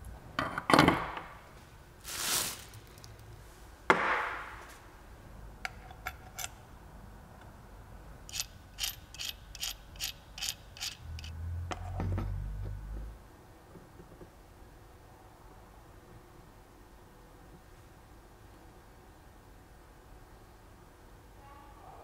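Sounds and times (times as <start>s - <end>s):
metal nut clicking onto socket: 5.6s - 6.6s.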